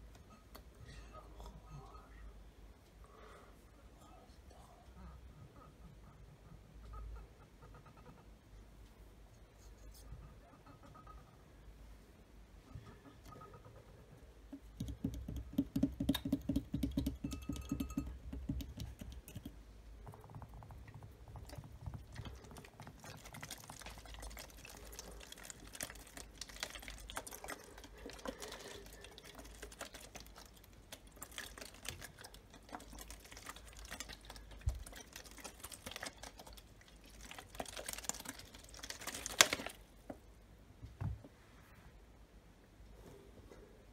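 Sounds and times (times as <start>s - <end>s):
fingernails tapping plastic bottle: 14.5s - 22.3s
plastic bottle crinkling: 21.5s - 39.9s.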